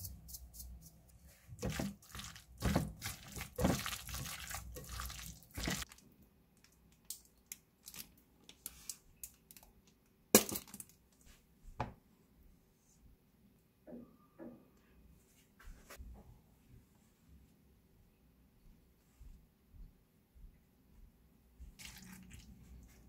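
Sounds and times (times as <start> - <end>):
chopsticks mixing wet food: 1.6 - 5.9.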